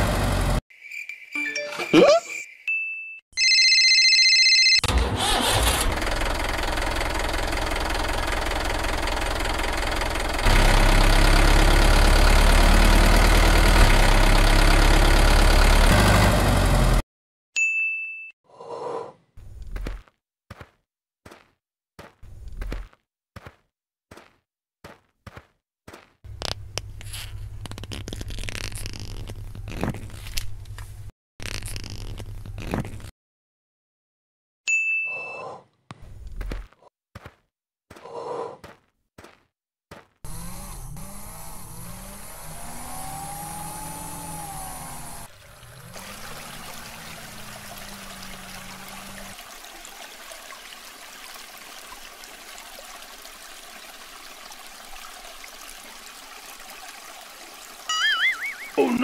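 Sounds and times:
water pump motor whine: 40.3 - 49.3
water trickling into plastic tank: 45.3 - 58.8.

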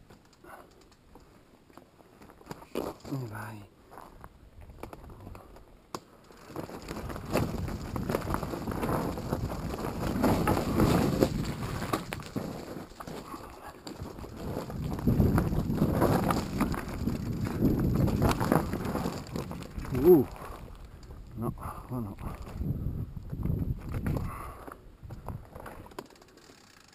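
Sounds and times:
bike tyres crunching over stones: 0.0 - 26.9
bike rattling and knocking: 6.3 - 21.0, 22.3 - 26.9.

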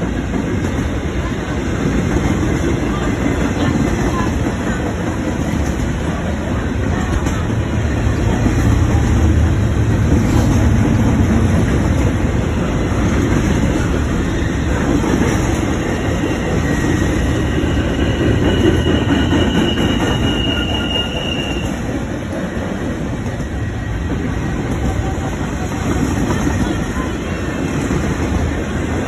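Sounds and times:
freight train wheels rumbling: 0.0 - 29.0
high wheel squeal: 15.7 - 21.9.

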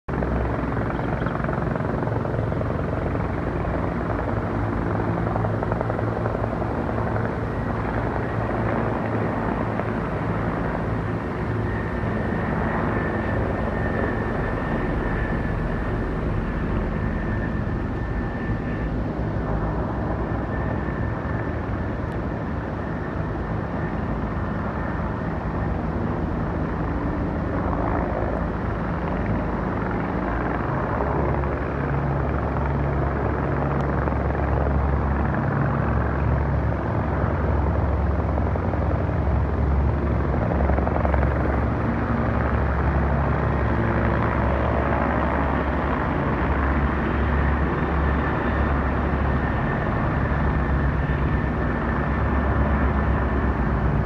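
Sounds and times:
helicopter rotor beating: 0.1 - 54.0
faint high whine: 0.8 - 30.5.

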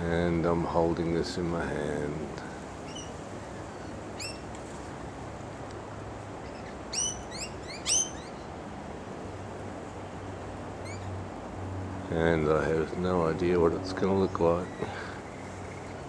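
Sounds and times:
lorikeets calling shrilly: 2.8 - 4.5, 6.4 - 8.5, 10.8 - 11.2, 14.6 - 16.0.

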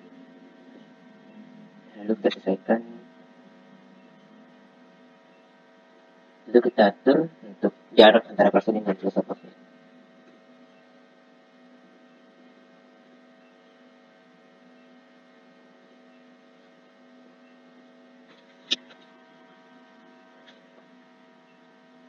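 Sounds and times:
faint electrical hum: 0.0 - 22.0
sharp click: 18.3 - 19.1.

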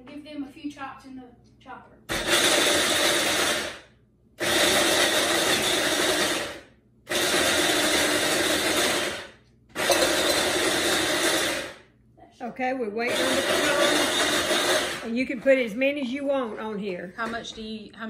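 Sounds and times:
electric food chopper running: 2.1 - 3.8, 4.4 - 11.8, 13.1 - 15.1.

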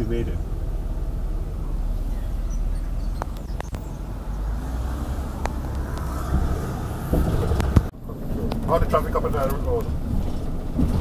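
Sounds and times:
car cabin engine rumble: 0.0 - 11.0.

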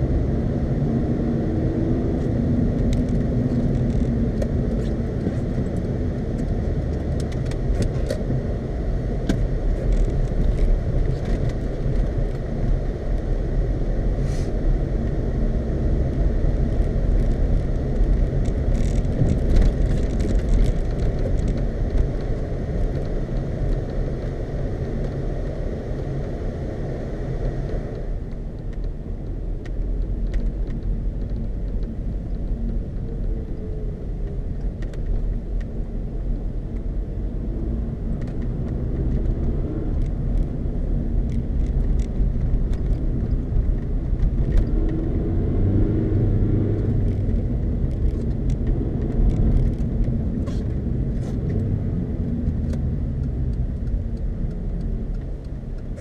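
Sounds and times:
car engine and tyre rumble: 0.0 - 56.0
hiss: 14.2 - 14.5.

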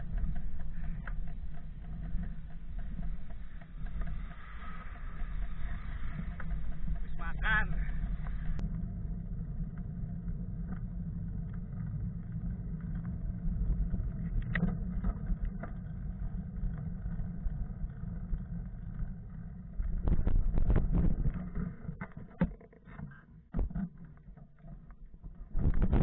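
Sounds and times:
small clicks and knocks: 0.0 - 8.6
bicycle wind and rolling rumble: 0.0 - 26.0.

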